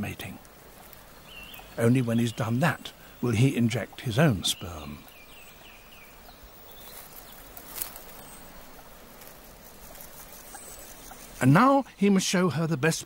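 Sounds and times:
soft steady hiss: 0:00.0 - 0:13.0.

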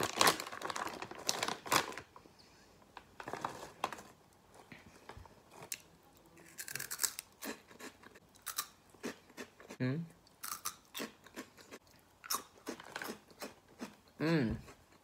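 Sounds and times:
plastic bag tearing: 0:00.0 - 0:02.1
plastic snack bag crinkling: 0:00.0 - 0:02.2, 0:02.9 - 0:04.6, 0:12.7 - 0:13.2.

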